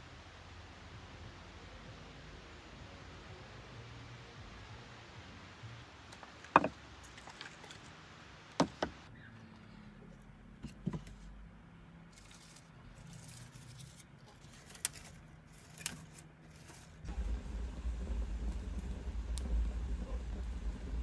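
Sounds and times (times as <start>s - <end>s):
background hiss: 0.0s - 9.1s, 17.0s - 21.0s.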